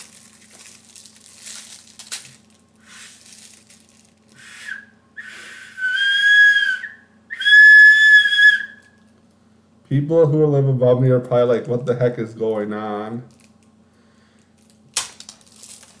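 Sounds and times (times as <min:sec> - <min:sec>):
breathy puffs into whistle: 0:04.4 - 0:06.6
high-pitched whistle blast: 0:04.4 - 0:09.0.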